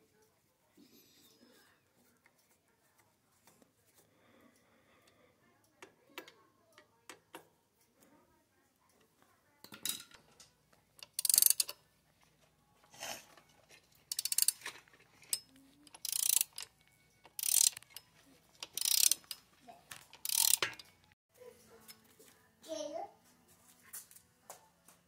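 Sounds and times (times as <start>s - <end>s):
ratchet wrench clicking: 11.0s - 11.8s, 14.1s - 14.7s, 15.3s - 18.0s, 18.6s - 20.9s.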